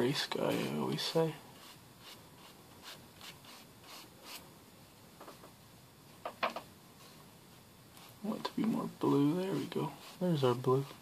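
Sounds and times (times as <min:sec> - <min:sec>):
brush swishing on paper: 0:00.4 - 0:04.4, 0:07.9 - 0:11.0.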